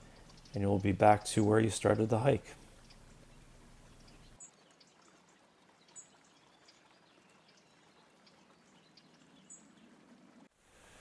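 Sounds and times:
faint outdoor hiss: 0.0s - 11.0s.

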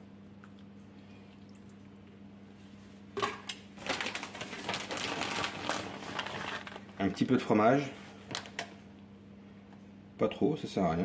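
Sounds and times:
faint steady hum: 0.0s - 11.0s
plastic packet crinkling: 3.8s - 7.4s, 8.3s - 8.7s.

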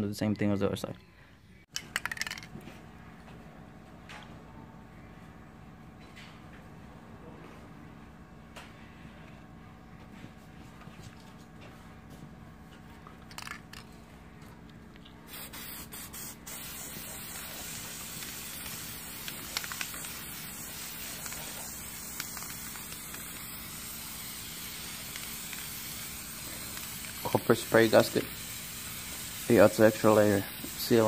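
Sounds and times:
aerosol can spraying: 15.3s - 31.0s.

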